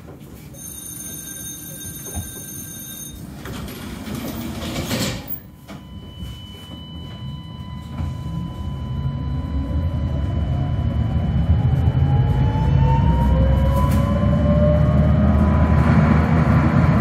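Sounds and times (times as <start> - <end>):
tram rumble: 0.0 - 17.0
high-pitched whine: 5.9 - 17.0.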